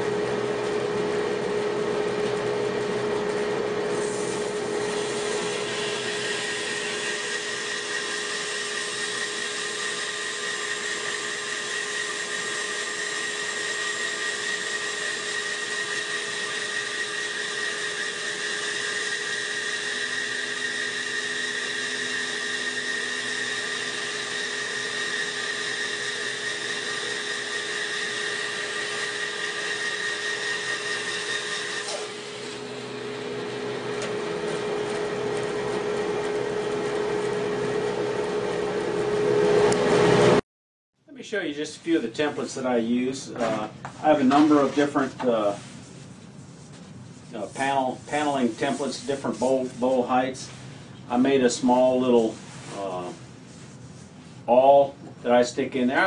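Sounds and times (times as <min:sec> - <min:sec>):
bandsaw cutting log: 0:03.9 - 0:40.4
saw running free: 0:04.1 - 0:37.1.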